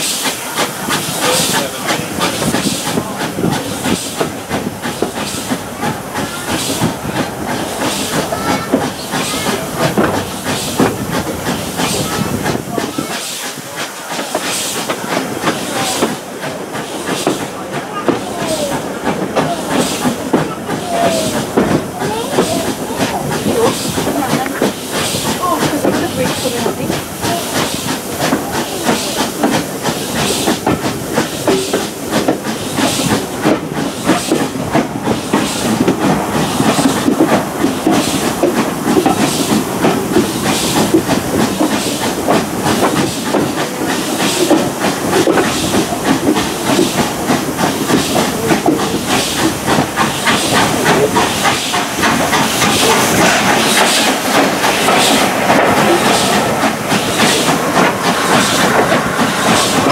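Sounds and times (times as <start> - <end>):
steam hiss: 0.0 - 59.9
steam locomotive exhaust beats: 0.0 - 59.9
carriage wheels clattering on rails: 16.8 - 59.9.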